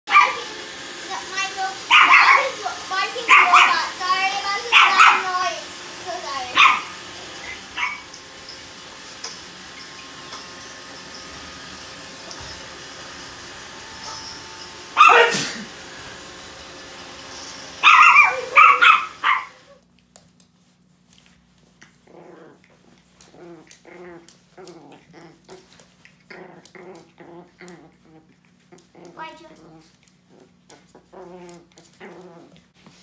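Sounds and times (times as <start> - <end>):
small dog barking: 0.1 - 0.5, 1.8 - 5.5, 6.4 - 8.1, 15.0 - 15.6, 17.8 - 19.7
robot vacuum humming: 0.1 - 19.7
dog growling: 15.0 - 15.8, 21.8 - 32.7.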